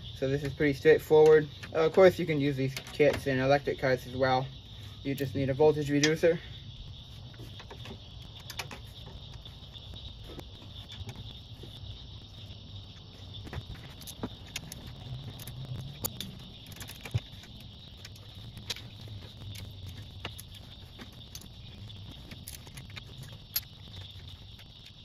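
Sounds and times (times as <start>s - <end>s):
insects chirring: 0.0s - 25.0s
wire connectors clicking: 13.3s - 25.0s.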